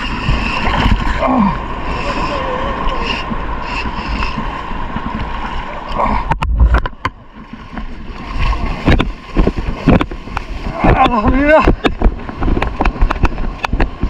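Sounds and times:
small waves sloshing: 0.0 - 14.0
sharp knocks and splashes: 6.2 - 14.0.

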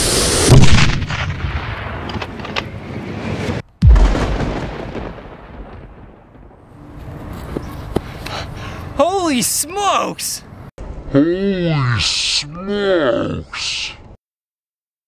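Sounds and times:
deeper explosion blast: 0.0 - 2.1, 3.8 - 6.6
explosion boom: 0.0 - 2.1, 3.8 - 6.6.

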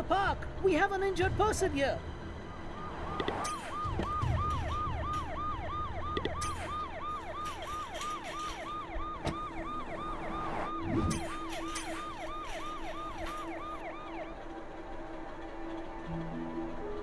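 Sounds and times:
low vehicle rumble: 0.0 - 17.0
cartoon siren wailing: 2.7 - 14.4.

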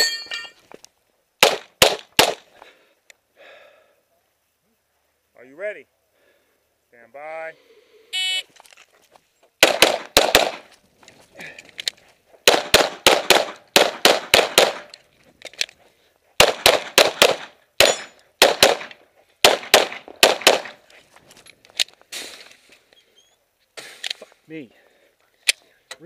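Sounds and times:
pistol shots: 1.4 - 2.4, 9.6 - 10.7, 12.4 - 14.9, 16.4 - 20.8.

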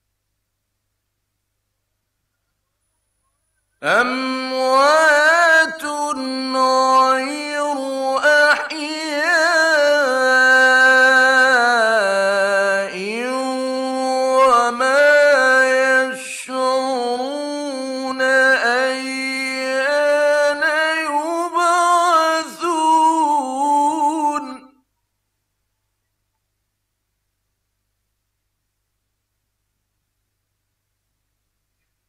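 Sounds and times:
man reciting melodically: 3.8 - 24.8.

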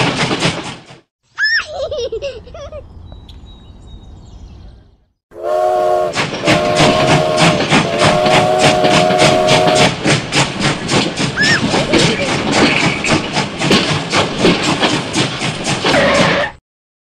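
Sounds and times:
toy train electronic whistle: 5.4 - 9.9
toy train chuffing: 5.4 - 16.0.

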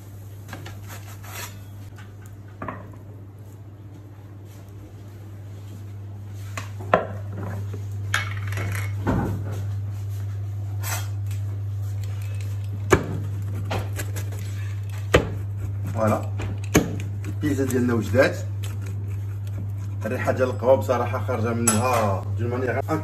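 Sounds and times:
steady low hum: 0.0 - 23.0
utensils clattering on marble counter: 8.1 - 9.0.

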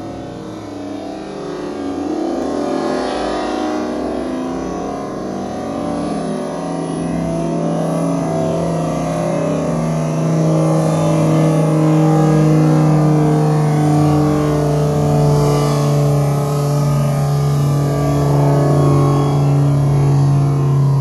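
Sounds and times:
propeller plane droning overhead: 0.0 - 21.0.

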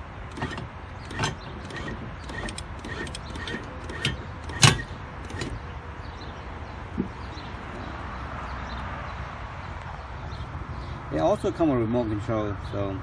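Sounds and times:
electric anchor winch: 0.0 - 5.6
metal clicks and knocks: 0.3 - 5.6.

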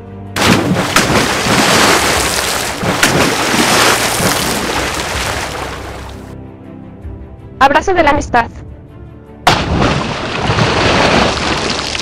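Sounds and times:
sharp cracks: 0.4 - 6.2, 9.5 - 12.0.

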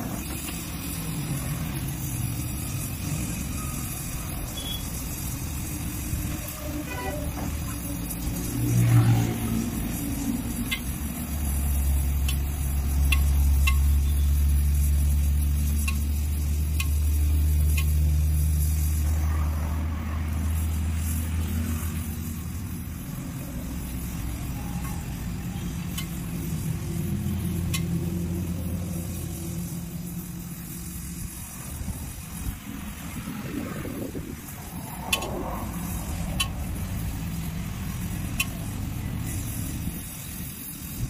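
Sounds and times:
vehicle engine rumbling: 0.0 - 41.0
welding torch flame hissing: 0.0 - 41.0.

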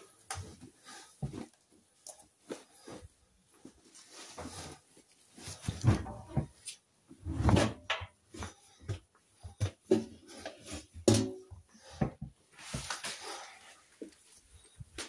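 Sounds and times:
clothes stuffed into washing machine: 5.5 - 13.5.

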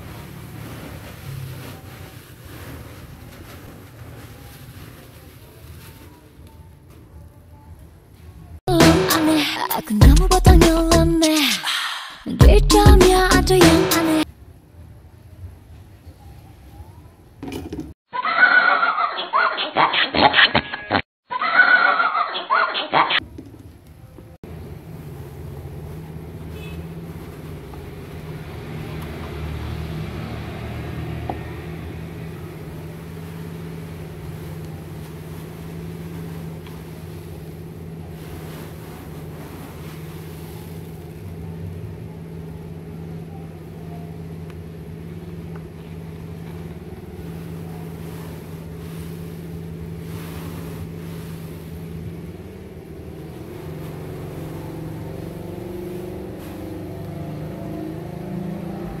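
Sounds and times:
soft rustling swishes: 0.0 - 6.3, 25.0 - 29.2, 32.2 - 41.4, 46.0 - 58.8
low motor hum: 24.4 - 59.0.

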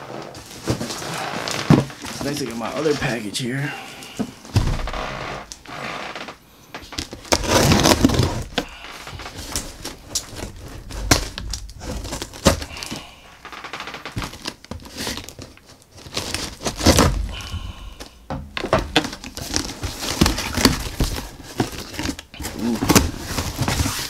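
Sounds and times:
cardboard and tape tearing: 0.1 - 3.2, 6.9 - 13.1, 13.9 - 17.6, 19.0 - 24.0.

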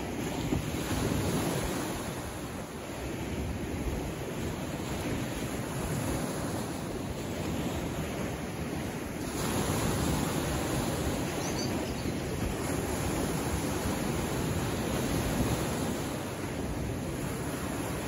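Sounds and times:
waves washing against rocks: 4.7 - 18.0.

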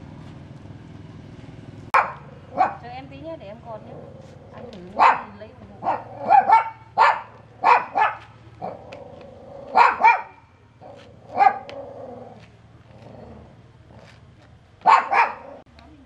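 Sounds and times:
dog barking: 2.0 - 2.9, 4.9 - 8.8, 9.7 - 11.8, 14.8 - 15.6.

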